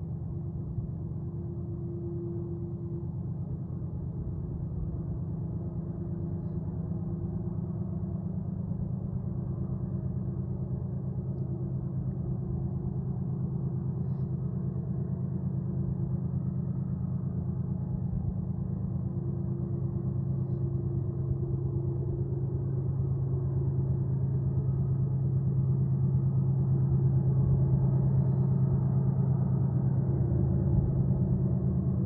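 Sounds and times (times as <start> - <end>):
distant diesel locomotive drone: 0.0 - 32.0.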